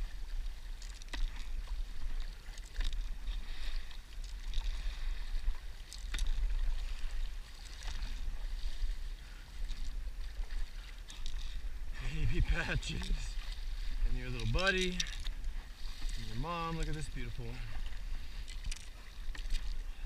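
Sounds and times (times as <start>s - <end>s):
paddle strokes splashing: 0.0s - 20.0s
wind rumble on microphone: 0.0s - 20.0s.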